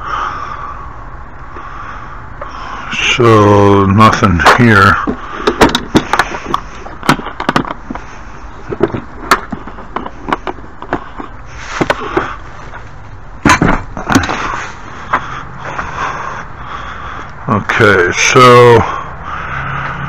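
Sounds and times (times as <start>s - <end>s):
small hardware clattering: 4.4s - 12.3s.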